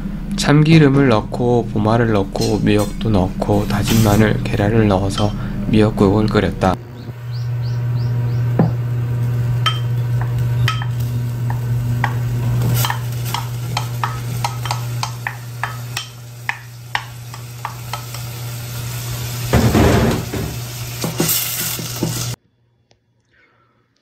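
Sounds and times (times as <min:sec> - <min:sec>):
low hum: 0:00.0 - 0:22.9
light sizzle: 0:01.6 - 0:06.4, 0:07.0 - 0:22.4
spatula stirring snails in pot: 0:09.6 - 0:19.6, 0:20.3 - 0:22.4
spatula tapping ceramic bowl: 0:09.7 - 0:12.2, 0:12.8 - 0:18.2.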